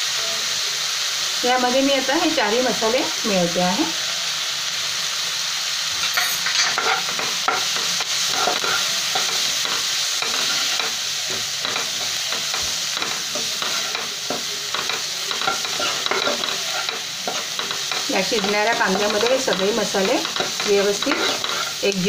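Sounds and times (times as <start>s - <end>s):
onions sizzling in hot oil: 0.0s - 22.0s
steel spoon scraping pan: 6.0s - 21.8s.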